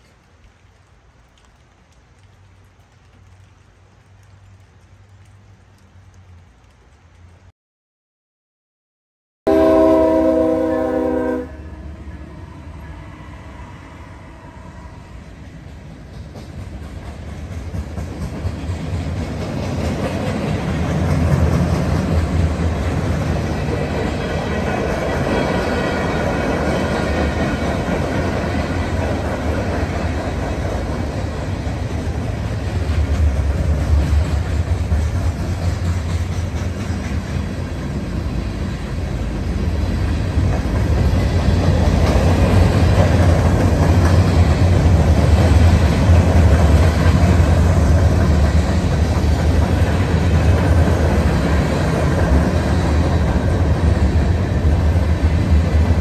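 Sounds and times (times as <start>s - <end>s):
steel wheels rumbling on rails: 12.0s - 56.0s.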